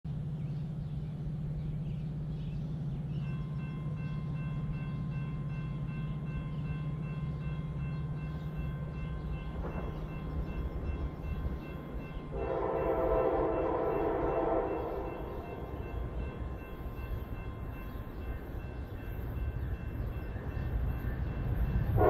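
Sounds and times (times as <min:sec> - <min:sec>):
train low rumble: 0:00.0 - 0:22.0
locomotive air horn chord: 0:12.3 - 0:16.0.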